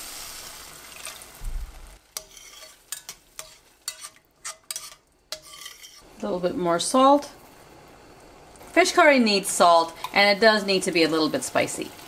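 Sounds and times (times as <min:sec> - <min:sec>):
water sizzling in hot pan: 0:00.0 - 0:12.0
spoon scraping metal pot: 0:02.2 - 0:06.1.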